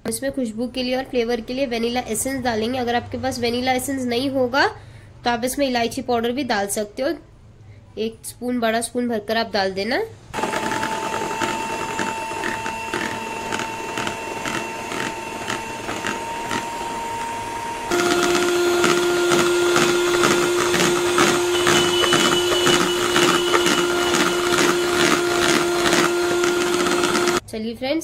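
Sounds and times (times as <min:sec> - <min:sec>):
beaters whipping cream: 0:10.4 - 0:27.4
electric hand mixer whining: 0:10.4 - 0:27.4.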